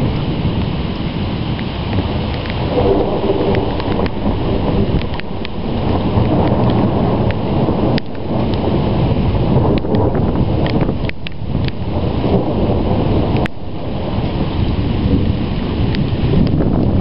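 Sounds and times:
low rumbling thunder: 0.0s - 17.0s
small sharp ticks: 5.0s - 5.6s, 10.6s - 11.8s.

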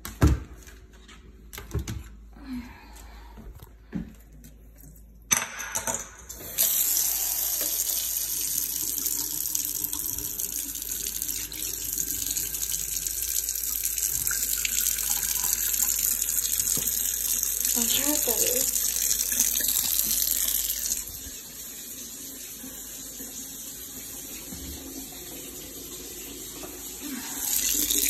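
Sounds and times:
faucet water running into sink: 6.3s - 28.0s.

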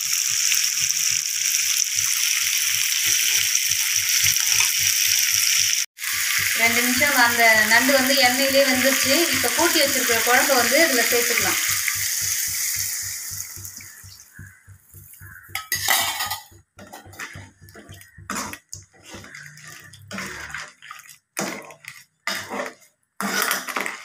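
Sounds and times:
hot oil sizzling: 0.0s - 23.9s
metal ladle scraping pan: 15.4s - 24.0s.

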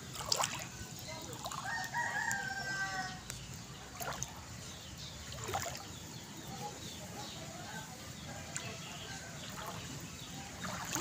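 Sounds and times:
floodwater sloshing and splashing: 0.0s - 2.4s, 3.3s - 6.3s, 8.0s - 11.0s.

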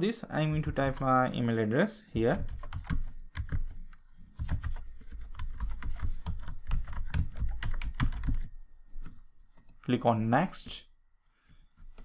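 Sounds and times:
fast typing on keyboard: 2.2s - 8.5s.

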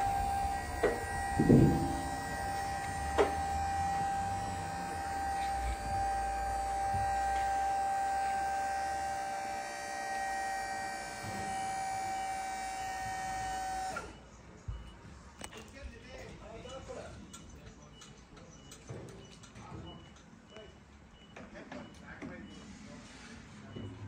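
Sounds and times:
scissor lift whining: 0.0s - 14.4s.

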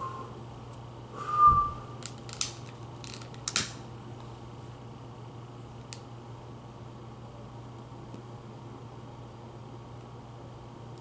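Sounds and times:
person whistling: 0.0s - 0.3s, 1.2s - 2.0s.

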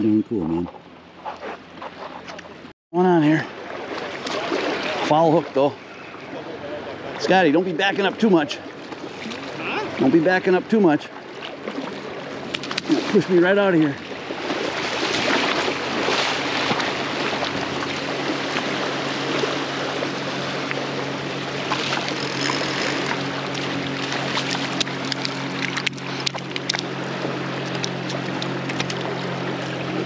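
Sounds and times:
motorboat engine humming: 0.0s - 30.0s.

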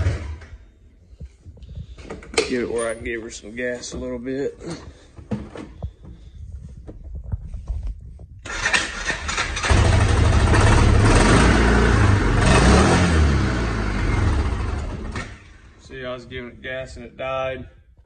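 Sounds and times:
engine revving unevenly: 9.6s - 15.6s.

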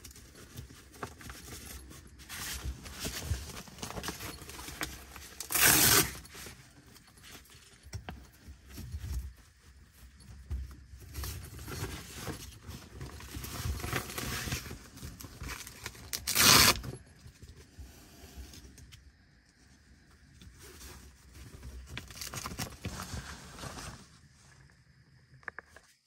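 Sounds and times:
tent fabric rustling: 0.0s - 18.6s, 20.3s - 24.7s
zipper zipping: 5.4s - 6.3s, 16.2s - 16.9s.

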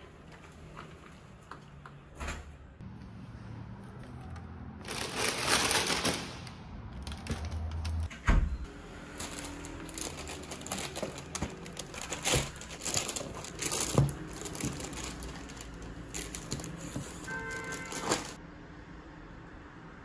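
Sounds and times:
plastic bag rustling: 4.8s - 7.8s, 9.0s - 18.4s
cardboard boxes crinkling and knocking: 9.1s - 18.4s.

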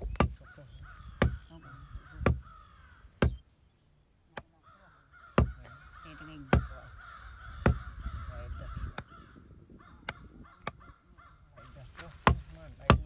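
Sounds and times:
machete chopping wood: 0.0s - 0.4s, 1.2s - 1.5s, 2.2s - 2.5s, 3.2s - 3.4s, 5.4s - 5.7s, 7.6s - 7.9s, 11.9s - 13.0s.

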